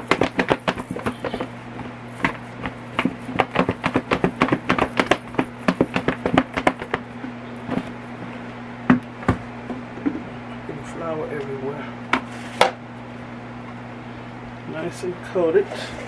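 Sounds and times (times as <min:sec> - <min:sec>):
chicken wings knocking in plastic bowl: 0:00.0 - 0:07.9.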